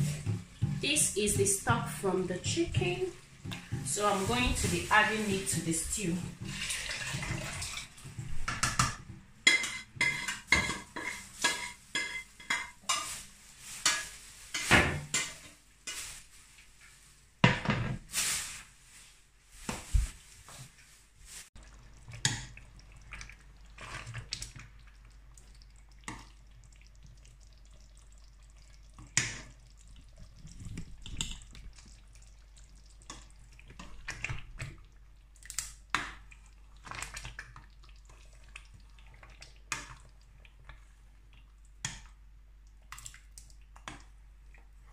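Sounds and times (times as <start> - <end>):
liquid pouring: 6.4 - 8.4, 21.6 - 35.1
spoon stirring thick stew: 9.1 - 13.1, 21.6 - 35.2
metal pots clanking: 9.4 - 13.2.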